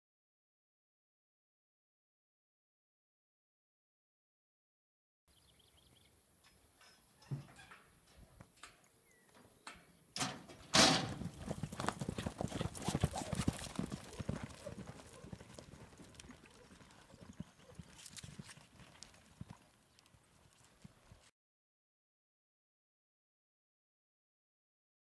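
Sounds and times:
horses galloping on dirt: 10.5 - 21.3.

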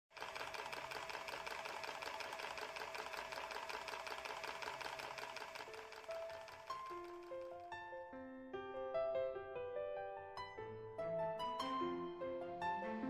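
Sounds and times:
mechanism clicking rapidly: 0.1 - 7.7
piano notes: 5.8 - 13.0.

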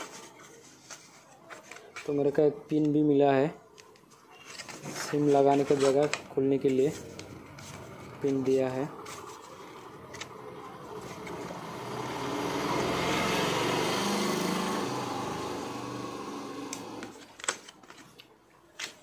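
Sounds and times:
motor engine passing by: 7.0 - 17.2
paper card clicks: 16.7 - 19.0.

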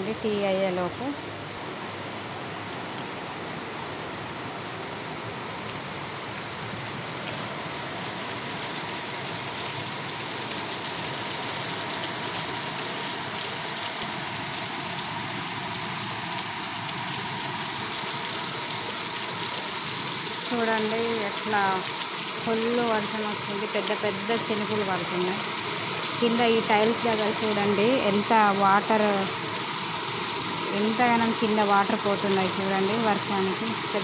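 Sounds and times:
heavy rain pouring: 0.0 - 34.0.

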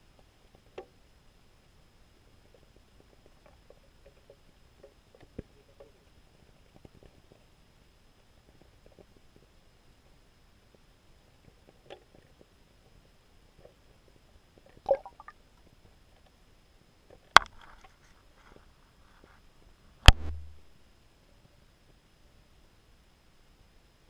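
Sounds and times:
brief low thud: 20.1 - 20.6.

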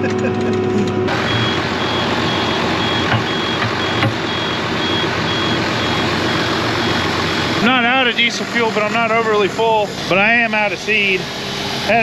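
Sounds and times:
steady mechanical running noise: 0.0 - 12.0
high electronic beeps: 1.1 - 8.5.

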